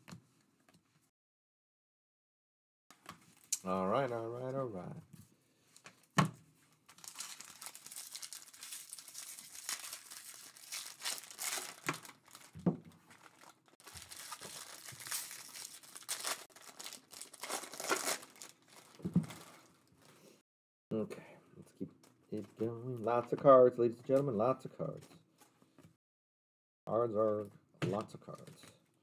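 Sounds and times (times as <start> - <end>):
foil wrappers crinkling and tearing: 6.9 - 20.1.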